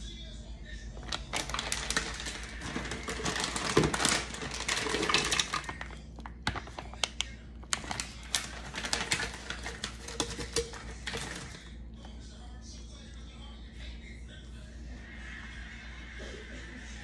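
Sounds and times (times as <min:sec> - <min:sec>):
frozen berries rattling in plastic jar: 0:01.0 - 0:11.7
frozen chunks clicking: 0:01.0 - 0:11.7.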